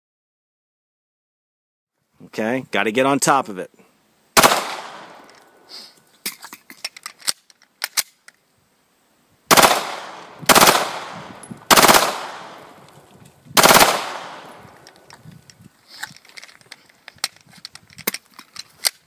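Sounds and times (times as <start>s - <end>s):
machine pistol bursts: 4.4s - 5.5s, 9.5s - 12.9s, 13.6s - 15.1s
light clicks of pistol handling: 4.7s - 8.5s, 14.1s - 19.0s.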